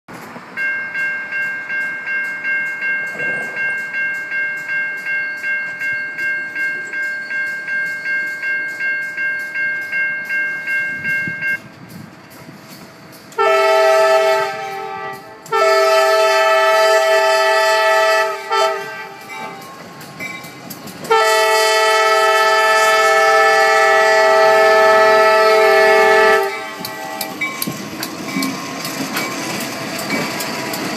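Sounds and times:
warning bell ringing: 0:00.6 - 0:11.7
locomotive air horn blasts: 0:13.4 - 0:19.7, 0:21.1 - 0:27.3.

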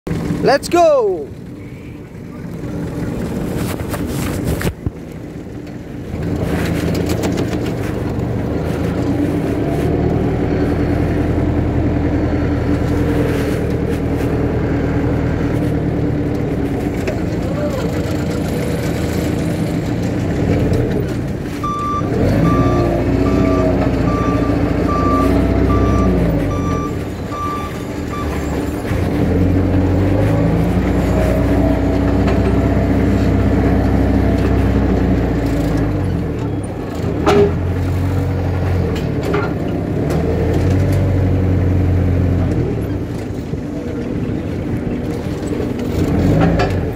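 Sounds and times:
forklift engine revving: 0:01.3 - 0:46.9
reversing beeper beeps: 0:21.6 - 0:28.5.

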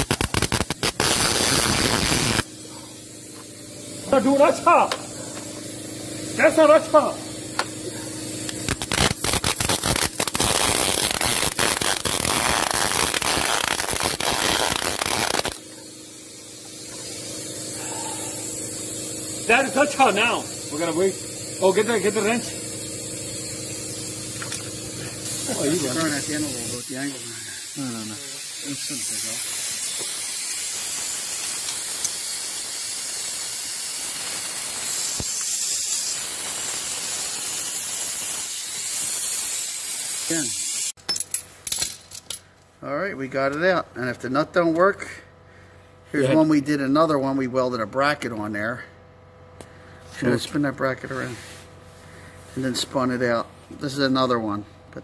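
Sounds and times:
welder arc crackling: 0:00.0 - 0:02.5, 0:08.4 - 0:41.0
steady hiss: 0:00.0 - 0:24.6, 0:25.2 - 0:41.0.

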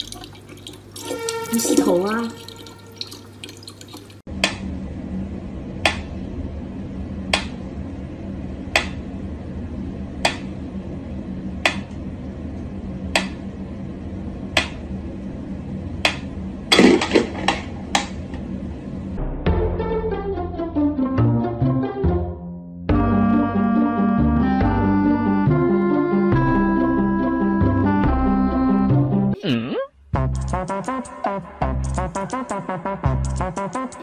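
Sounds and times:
steady low hum: 0:04.2 - 0:19.4.

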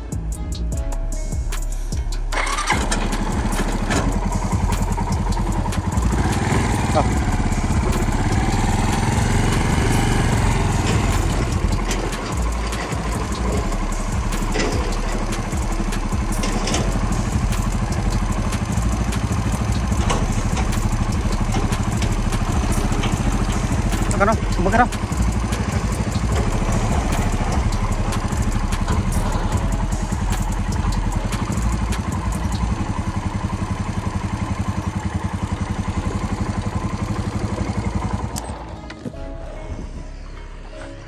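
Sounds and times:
excavator diesel engine running: 0:01.7 - 0:41.0
knocks and clatter: 0:02.8 - 0:32.7.

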